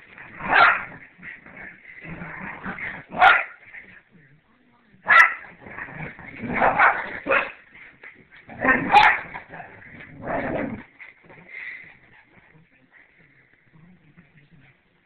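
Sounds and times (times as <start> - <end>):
dogs barking and yipping: 3.2 - 3.6, 8.7 - 9.5.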